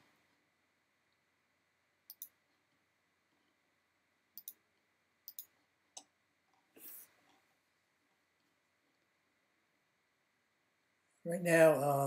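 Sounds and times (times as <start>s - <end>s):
computer mouse clicking: 2.1s - 2.4s, 4.4s - 4.6s, 5.3s - 6.1s.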